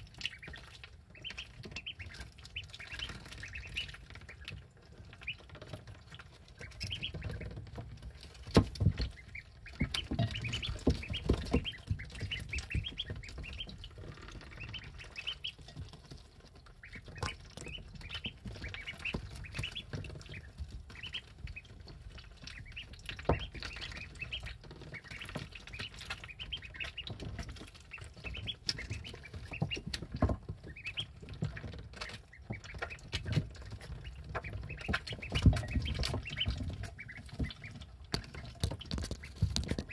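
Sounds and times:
ducklings peeping: 0.0s - 39.9s
thumps: 6.7s - 15.1s.

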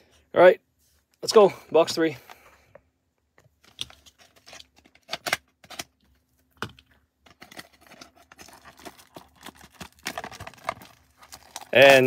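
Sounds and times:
plastic wrap rustling: 7.3s - 12.0s.

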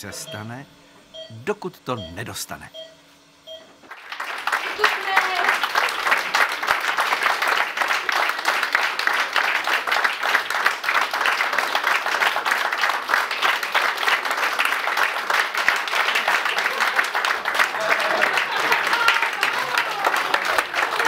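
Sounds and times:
crowd applauding: 3.9s - 21.0s.

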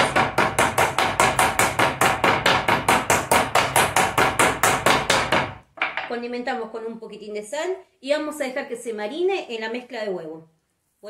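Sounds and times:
meat mallet pounding on board: 0.0s - 6.0s.

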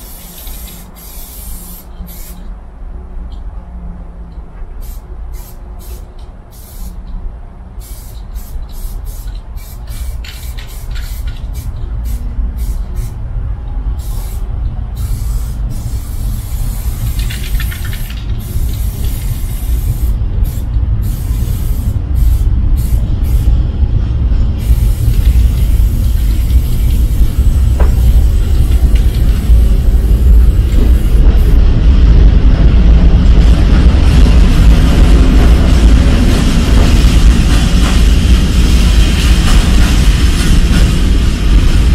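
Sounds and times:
aerosol spray can hissing: 0.0s - 2.5s, 4.8s - 7.0s, 7.8s - 13.2s, 14.0s - 23.5s
low rumble: 10.7s - 41.9s.

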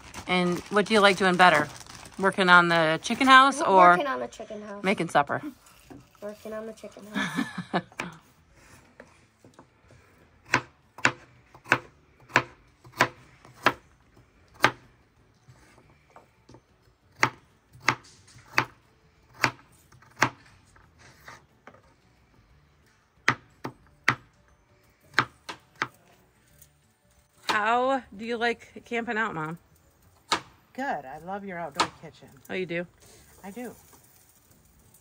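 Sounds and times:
knife chopping carrots on board: 10.4s - 13.8s, 17.1s - 21.4s, 23.2s - 24.3s, 25.1s - 26.0s.

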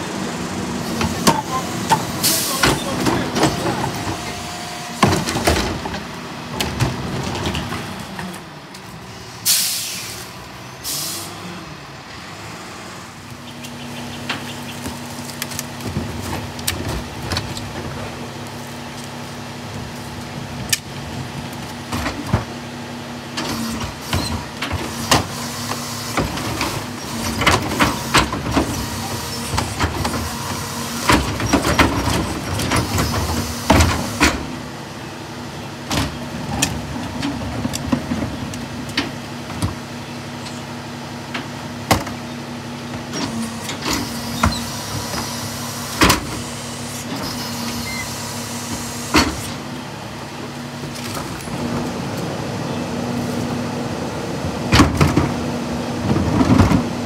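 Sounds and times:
garbage truck diesel engine: 0.0s - 57.0s
air hissing: 9.4s - 11.3s.

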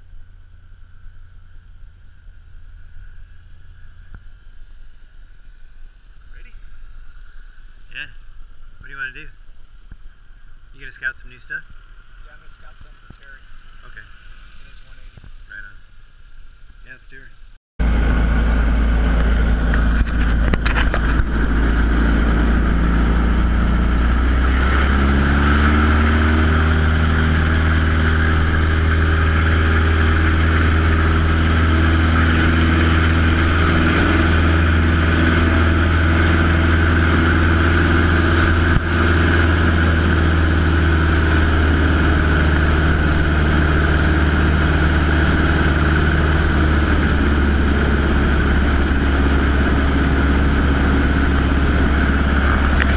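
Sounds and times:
plane engine and propeller: 0.0s - 9.5s, 17.8s - 52.9s.

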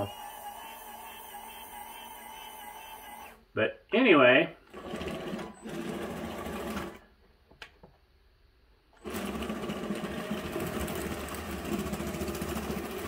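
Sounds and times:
electric toy motors running: 0.0s - 3.4s, 9.0s - 13.0s.

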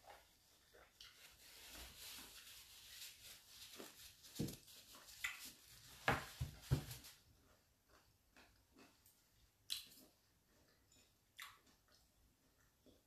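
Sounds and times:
person chewing crunchy mango: 7.4s - 13.0s.

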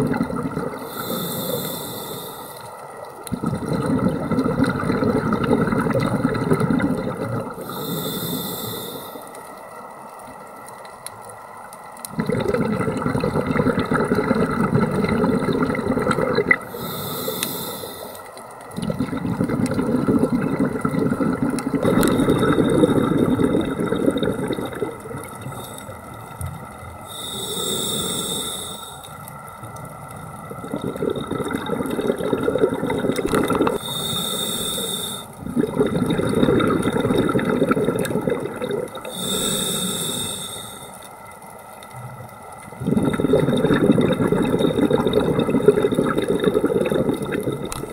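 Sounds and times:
exhaled bubbles rumbling: 0.0s - 1.6s, 3.0s - 7.9s, 12.0s - 17.0s, 18.6s - 34.2s, 35.3s - 39.5s, 41.9s - 47.9s
regulator breath hiss: 0.8s - 2.7s, 7.6s - 9.4s, 16.7s - 18.3s, 25.5s - 26.0s, 27.0s - 29.2s, 33.8s - 35.4s, 39.1s - 41.2s.

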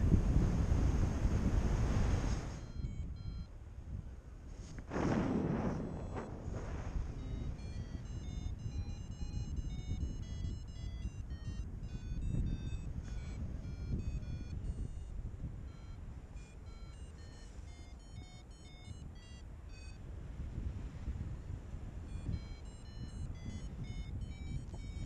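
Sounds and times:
wind buffeting microphone: 0.0s - 17.3s, 20.0s - 25.0s
high electronic beeps: 2.6s - 3.5s, 7.2s - 15.1s, 15.7s - 20.0s, 22.1s - 25.0s.

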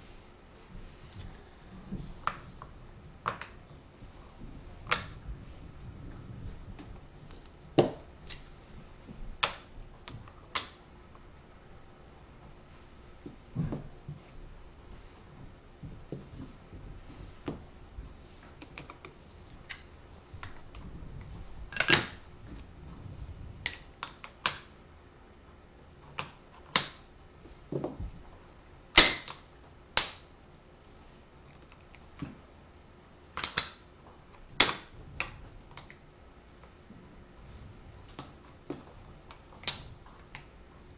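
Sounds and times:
wood tapping and shuffling: 0.0s - 24.2s, 27.3s - 28.6s
wooden blocks clacking together: 21.7s - 22.3s, 33.3s - 33.9s.

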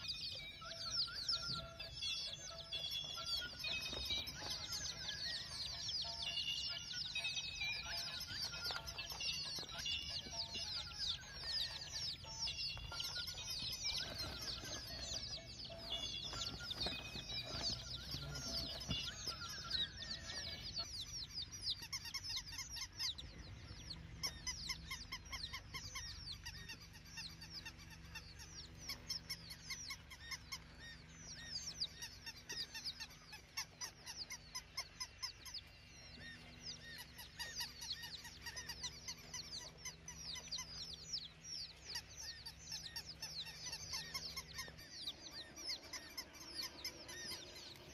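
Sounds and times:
flock of birds calling: 0.0s - 47.9s.

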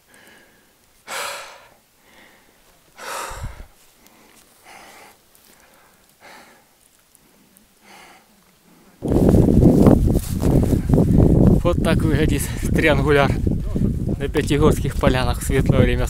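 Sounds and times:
person breathing hard: 0.0s - 9.0s.

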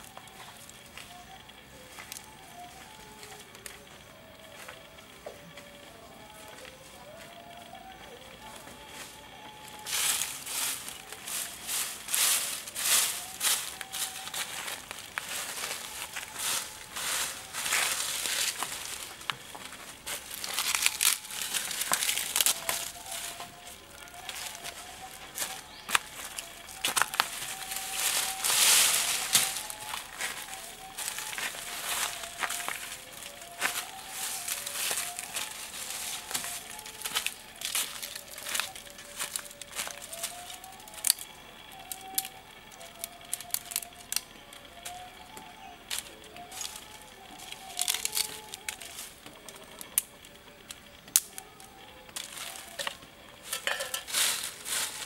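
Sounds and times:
dry leaves rustling: 0.0s - 4.8s, 5.6s - 55.0s
faint background music: 0.0s - 55.0s
twigs snapping: 9.7s - 55.0s.

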